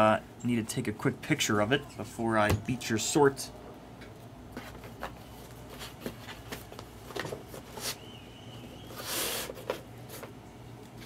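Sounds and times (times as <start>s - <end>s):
sliding hiss: 8.9s - 9.8s.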